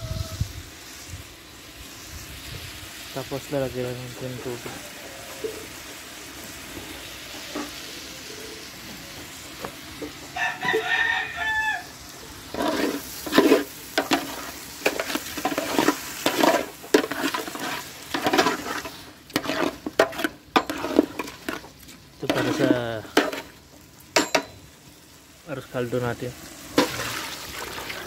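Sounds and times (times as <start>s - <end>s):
food sizzling in a pot: 0.0s - 28.0s
rooster crowing: 4.6s - 5.7s, 10.2s - 12.4s
metal spoon scraping a pot: 12.5s - 23.5s.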